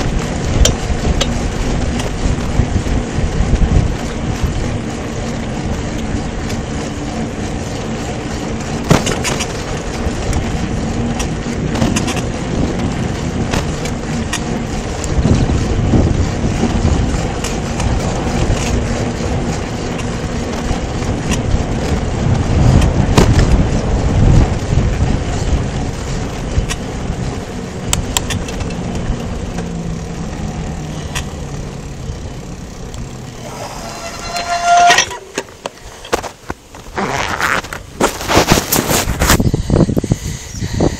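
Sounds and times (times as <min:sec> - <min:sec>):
wind buffeting microphone: 0:00.0 - 0:37.0, 0:37.6 - 0:40.9
bike and mount rattling: 0:00.0 - 0:40.9
tyres rumbling on asphalt: 0:00.0 - 0:40.9
brief high squeal: 0:33.4 - 0:35.4.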